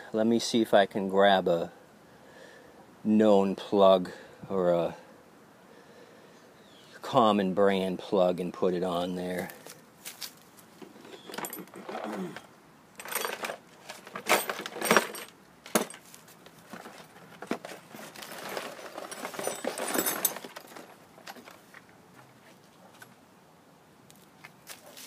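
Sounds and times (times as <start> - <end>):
hand tools clinking and scraping: 9.4 - 23.1.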